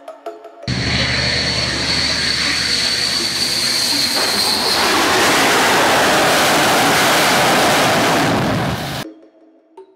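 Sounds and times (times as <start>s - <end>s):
thin high whine: 0.7s - 6.4s
jet engine roar: 0.7s - 9.0s.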